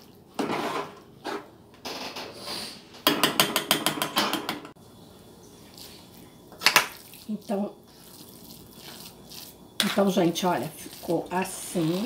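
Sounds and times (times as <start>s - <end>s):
ladle scraping in cooking pot: 0.4s - 1.5s.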